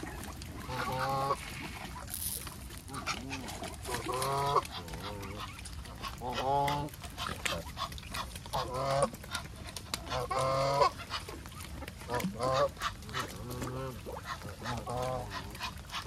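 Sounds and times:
geese honking: 0:00.0 - 0:02.0, 0:10.0 - 0:11.3.

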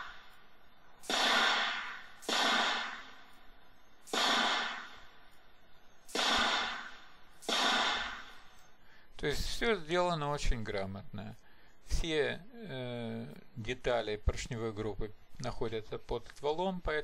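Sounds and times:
rifle gunshots: 0:01.0 - 0:03.2, 0:04.0 - 0:05.0, 0:06.1 - 0:08.4.

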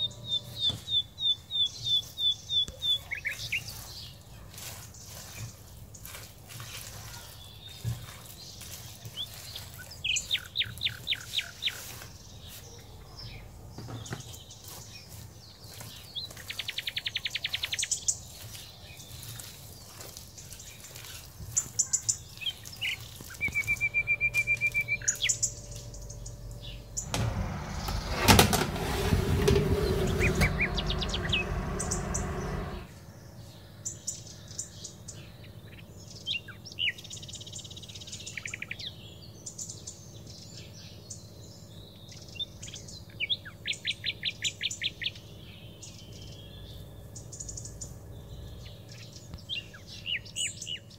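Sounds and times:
loud rushing noise: 0:27.0 - 0:33.0.

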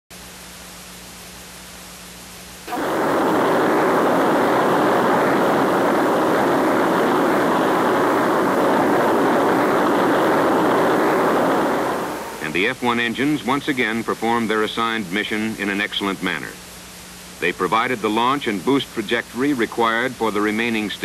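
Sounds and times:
rocket engines roaring: 0:02.7 - 0:12.8.

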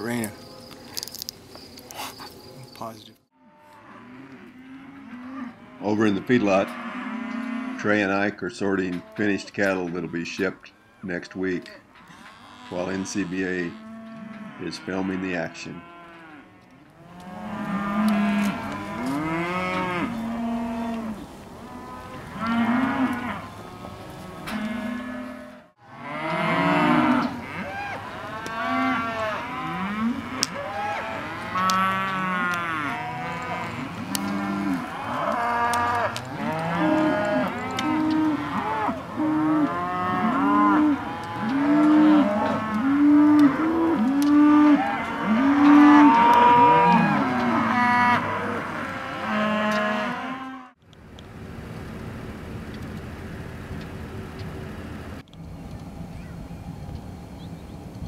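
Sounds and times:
cattle mooing: 0:03.4 - 0:50.7
quiet steady noise: 0:50.8 - 0:58.0.

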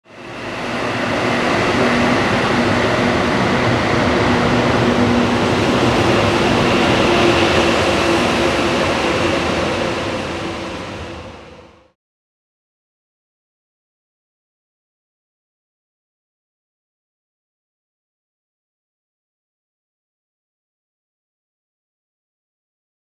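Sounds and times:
train rushing past: 0:00.1 - 0:12.0.

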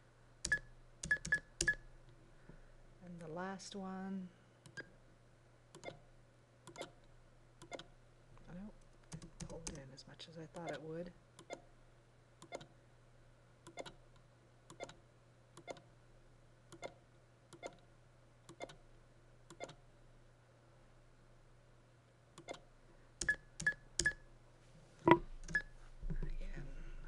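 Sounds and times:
computer mouse clicking: 0:09.1 - 0:09.8, 0:13.7 - 0:14.0, 0:14.7 - 0:15.0, 0:16.7 - 0:17.8.

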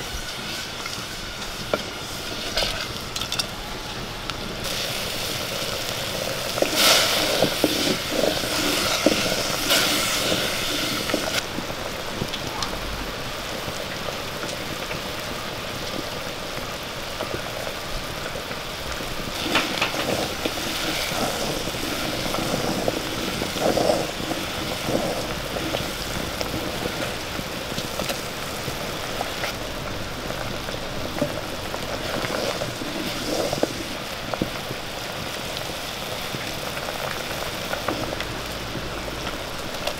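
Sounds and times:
syrup boiling in a pot: 0:00.0 - 0:39.9
wooden spoon scraping a pot: 0:06.6 - 0:11.4, 0:19.4 - 0:27.4, 0:31.1 - 0:34.5.

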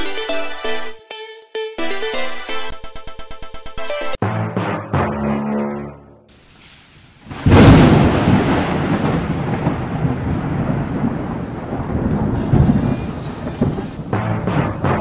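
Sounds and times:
heavy rain: 0:06.3 - 0:15.0
thunder rumbling: 0:07.2 - 0:15.0.

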